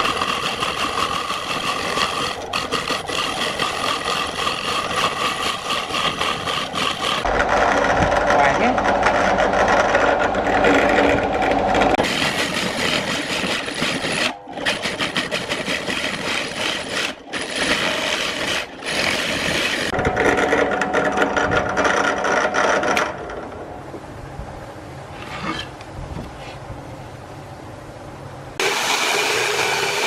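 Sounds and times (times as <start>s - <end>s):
drill bit rasping through wood: 0.0s - 20.6s, 28.6s - 30.0s
drill press motor whine: 0.0s - 23.7s, 28.6s - 30.0s.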